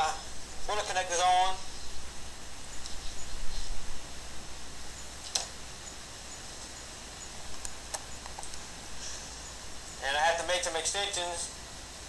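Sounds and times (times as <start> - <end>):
low steady hum: 0.0 - 12.0
faint rustling: 1.6 - 5.6
sharp click: 5.2 - 5.5.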